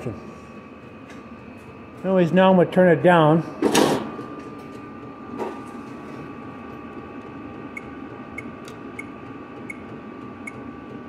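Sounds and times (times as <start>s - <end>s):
heater blower hum with whine: 0.0s - 11.0s.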